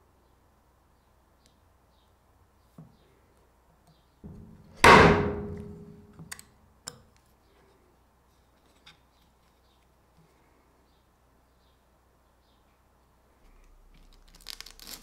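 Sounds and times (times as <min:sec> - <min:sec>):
metal strike on a punch: 0:04.3 - 0:06.0.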